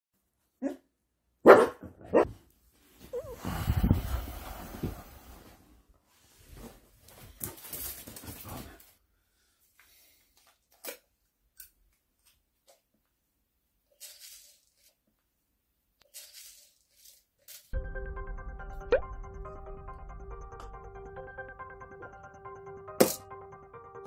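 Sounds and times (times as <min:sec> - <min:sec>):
dog barking: 0:00.6 - 0:02.4
soft shuffling: 0:02.3 - 0:08.9.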